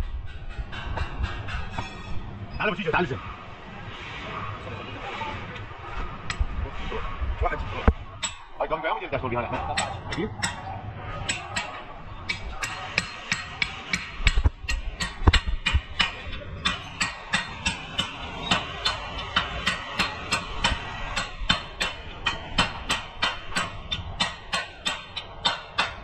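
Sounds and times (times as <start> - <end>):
hammer striking metal: 0.0 - 2.3, 8.2 - 8.5, 9.6 - 26.0.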